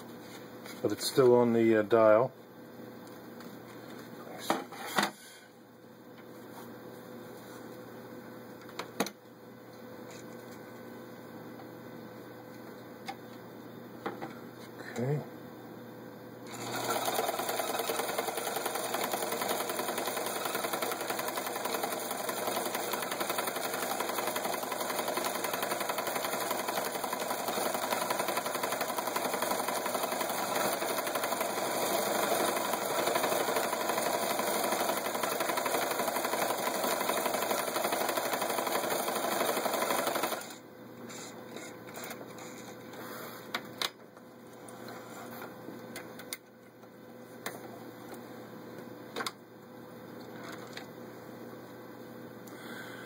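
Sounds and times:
sewing machine running: 16.5 - 40.6.

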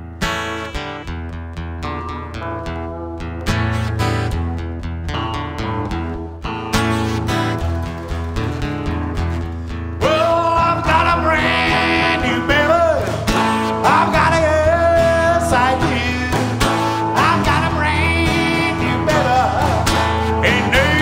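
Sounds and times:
acoustic guitars strumming: 0.0 - 21.0
man singing: 10.0 - 21.0.

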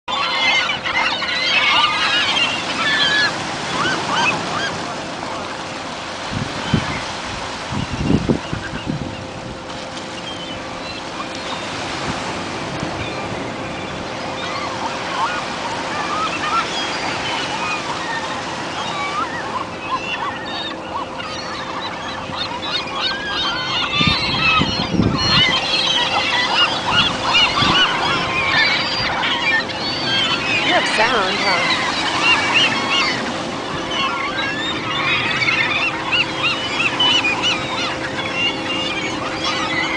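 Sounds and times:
gulls calling: 0.1 - 39.9
waves on rocky shore: 1.6 - 19.9, 24.5 - 38.2.

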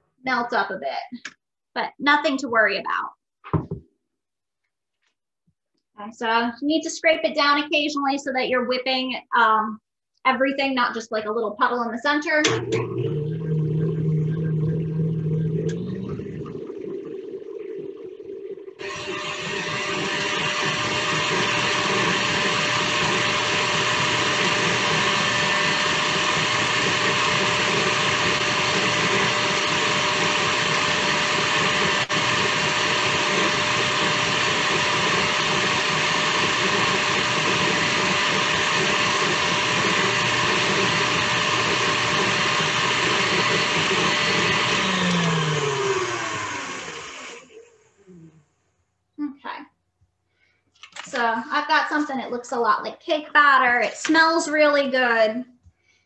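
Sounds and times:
electric mixer whining: 12.4 - 48.2.

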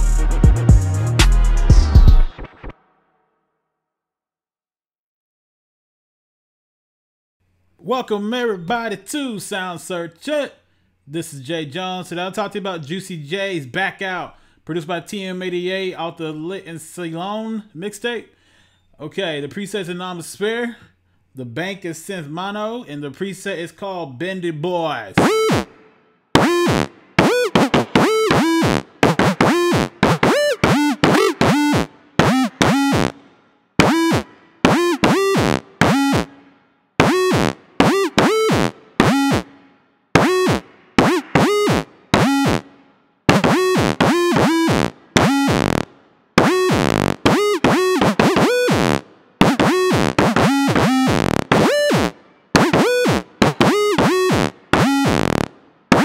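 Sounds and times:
synth lead bending notes: 25.2 - 25.8, 26.4 - 33.2, 33.8 - 56.0.

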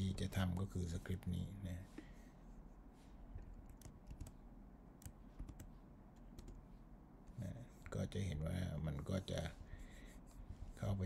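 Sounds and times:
computer keys clicking: 3.4 - 4.4, 5.0 - 6.6.

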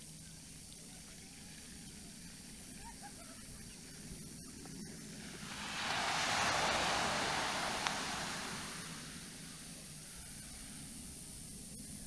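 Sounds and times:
small wave breaking on sand: 5.2 - 9.7.

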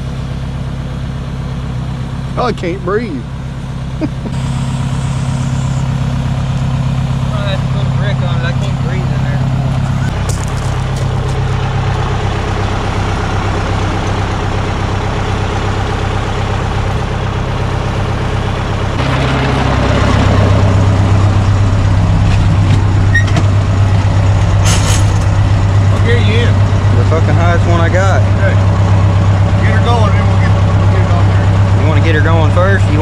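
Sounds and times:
diesel engine idling: 0.0 - 33.0.

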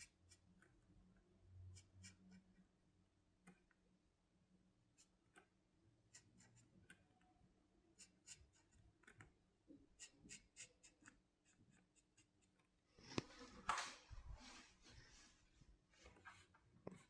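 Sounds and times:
pen scratching on paper: 8.0 - 9.2, 10.0 - 12.6.

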